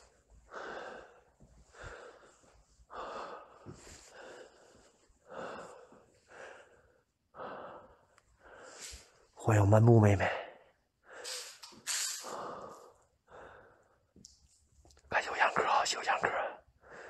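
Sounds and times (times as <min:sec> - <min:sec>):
person breathing heavily: 0:00.5 - 0:09.2, 0:12.2 - 0:14.0, 0:15.4 - 0:17.0.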